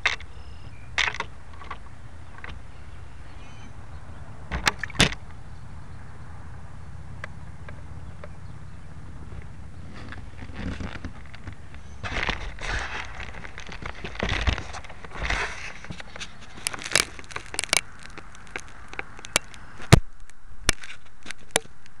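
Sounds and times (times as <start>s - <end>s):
camera handling rustle: 10.0s - 20.0s
camera body clicks and pops: 10.6s - 21.9s.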